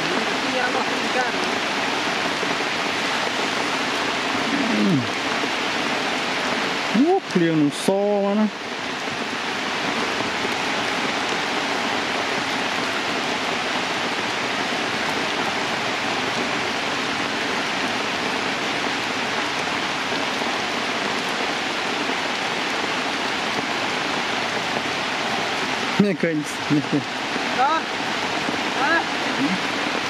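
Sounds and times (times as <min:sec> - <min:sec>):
heavy rain on wet ground: 0:00.0 - 0:30.0.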